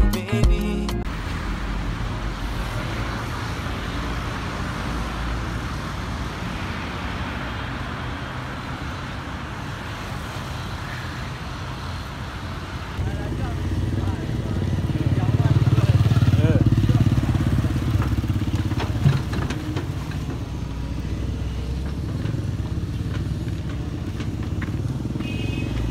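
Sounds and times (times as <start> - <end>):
song: 0.0 - 1.1
road traffic hum and rumble: 1.0 - 25.9.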